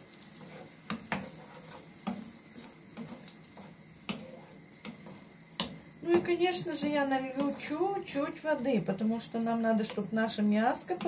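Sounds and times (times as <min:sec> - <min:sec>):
faint frying sizzle: 0:00.0 - 0:11.0
wooden spatula knocking pan: 0:00.8 - 0:01.4, 0:02.9 - 0:11.0.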